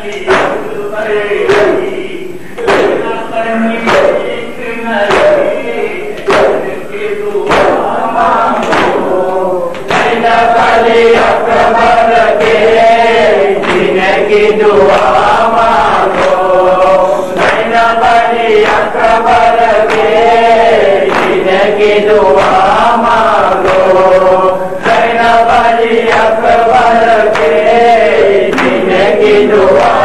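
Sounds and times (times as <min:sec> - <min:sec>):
lead reciter on microphone: 0:00.0 - 0:30.0
men chanting in unison: 0:00.0 - 0:30.0
hands slapping chests: 0:02.6 - 0:03.1, 0:03.9 - 0:04.2, 0:05.1 - 0:05.5, 0:06.2 - 0:06.8, 0:07.4 - 0:12.7, 0:13.6 - 0:14.0, 0:16.1 - 0:18.8, 0:21.0 - 0:22.6, 0:28.5 - 0:30.0.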